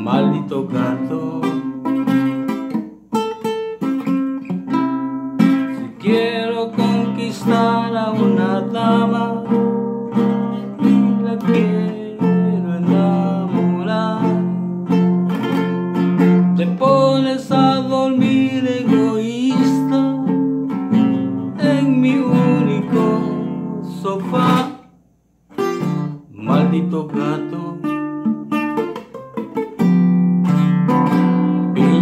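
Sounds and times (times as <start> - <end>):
man singing: 0.0 - 2.6, 5.7 - 15.0, 16.3 - 24.9, 26.3 - 28.4, 31.4 - 32.0
strummed acoustic guitar: 0.0 - 32.0.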